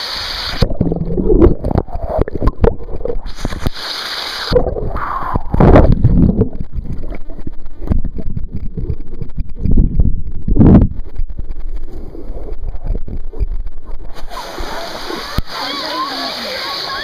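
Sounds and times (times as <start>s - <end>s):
hissing splash: 0.0s - 6.1s, 14.1s - 17.0s
muffled underwater sloshing: 0.6s - 17.0s.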